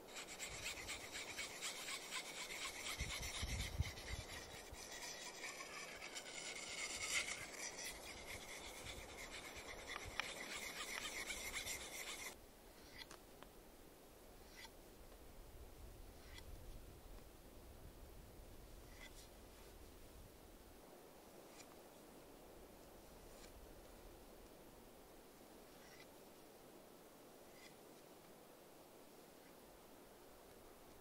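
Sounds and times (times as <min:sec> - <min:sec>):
knife rasping on whetstone: 0:00.0 - 0:12.4.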